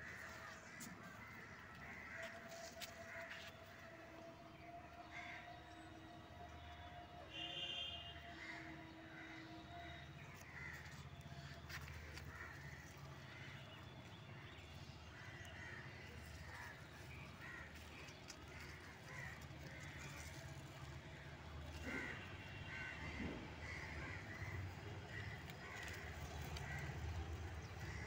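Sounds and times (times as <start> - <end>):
faint crows cawing: 0.0 - 28.0
leaves rustling: 15.1 - 22.8, 23.9 - 28.0.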